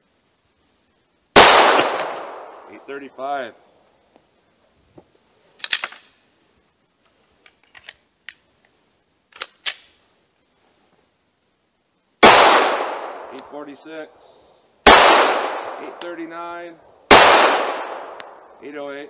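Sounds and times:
pistol shot: 0:01.4 - 0:02.8, 0:12.2 - 0:13.6, 0:14.8 - 0:16.2, 0:17.1 - 0:18.5
pistol metallic clicks: 0:01.7 - 0:02.4, 0:05.6 - 0:06.1, 0:09.3 - 0:10.0, 0:13.0 - 0:13.6, 0:15.5 - 0:16.2, 0:17.8 - 0:18.4.

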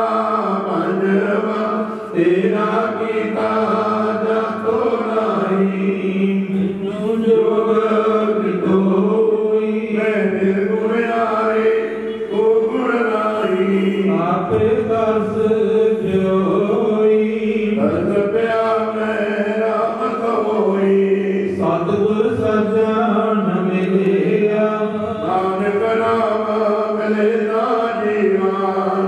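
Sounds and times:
person chanting a hymn: 0:00.0 - 0:29.0
steady held drone note: 0:22.8 - 0:26.5.

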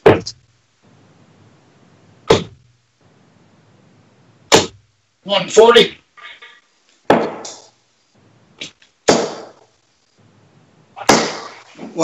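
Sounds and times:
darts thudding into dartboard: 0:00.0 - 0:00.4, 0:02.3 - 0:02.6, 0:07.1 - 0:07.7, 0:08.6 - 0:09.6, 0:11.0 - 0:11.9.

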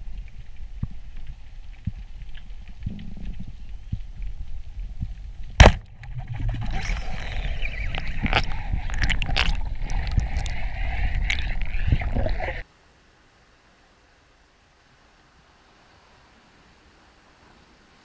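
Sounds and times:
rushing clattering underwater noise: 0:00.0 - 0:12.6
speargun crack: 0:05.6 - 0:06.0.

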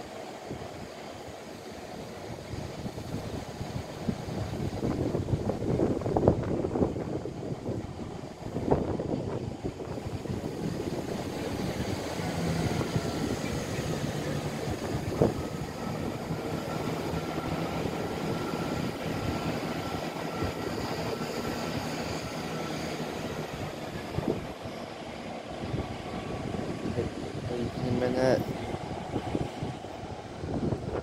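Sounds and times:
diesel railcar engine rumble: 0:00.0 - 0:31.0.

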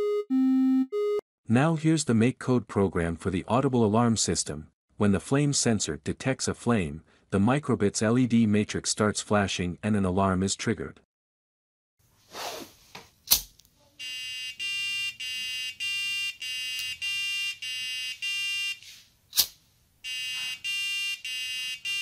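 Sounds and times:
two-note electronic alarm beeping: 0:00.0 - 0:01.2, 0:14.0 - 0:18.8, 0:20.1 - 0:22.0.

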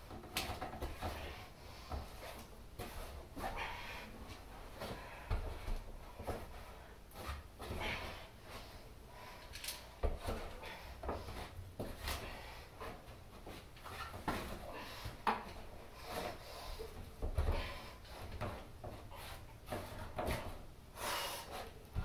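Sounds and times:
climber knocking and scraping on beams: 0:17.1 - 0:20.7.

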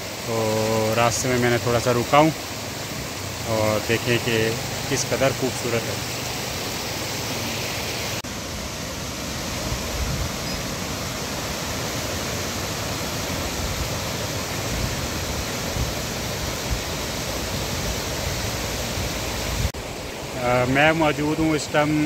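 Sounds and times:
river rushing over rocks: 0:00.0 - 0:22.0.

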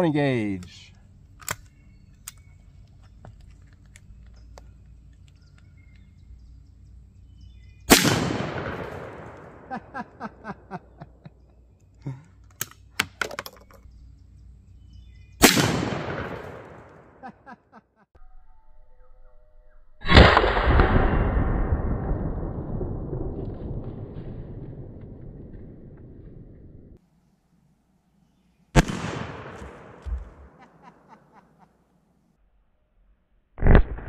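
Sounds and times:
shotgun shots echoing: 0:07.9 - 0:09.9, 0:15.4 - 0:17.2, 0:20.1 - 0:21.5, 0:28.8 - 0:30.6.

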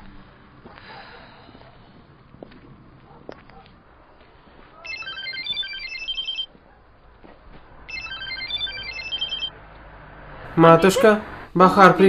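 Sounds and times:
phone ringtone melody: 0:04.9 - 0:06.5, 0:07.9 - 0:09.5.

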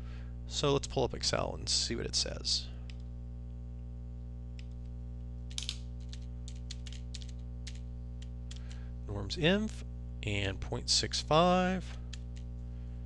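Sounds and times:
steady low hum: 0:00.0 - 0:13.0
typing on keyboard: 0:05.5 - 0:07.8.

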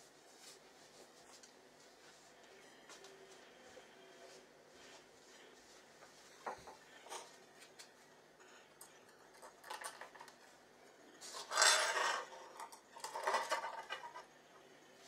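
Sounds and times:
cable scraping on tiles: 0:08.4 - 0:10.5, 0:11.2 - 0:14.4.

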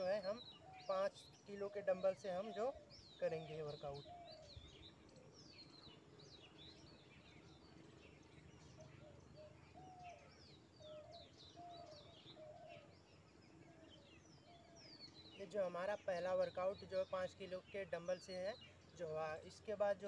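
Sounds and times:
lower bird call: 0:00.0 - 0:15.4
small birds chirping: 0:00.0 - 0:20.0
soft outdoor background noise: 0:00.0 - 0:20.0.

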